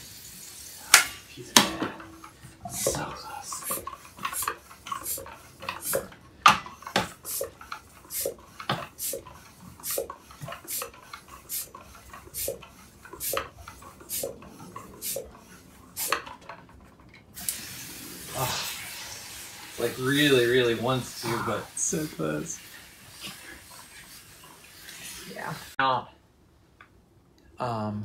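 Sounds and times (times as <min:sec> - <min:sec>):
floor pump strokes whooshing: 0:02.0 - 0:16.2, 0:20.0 - 0:25.8.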